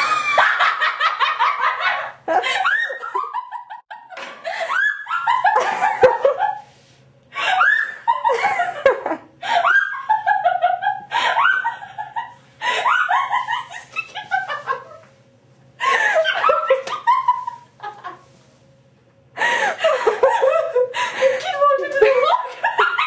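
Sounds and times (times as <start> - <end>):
woman laughing loudly: 0.0 - 6.7, 7.4 - 15.1, 15.8 - 18.3, 19.6 - 23.0.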